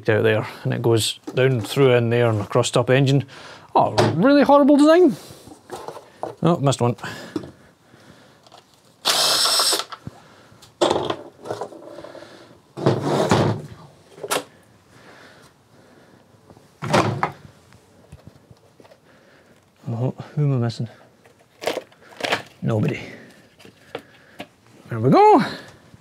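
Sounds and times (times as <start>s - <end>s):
plastic covers clunking and rattling: 5.6s - 6.5s, 10.8s - 12.0s, 12.8s - 14.5s, 16.8s - 17.4s
power tool whirring: 9.0s - 10.0s.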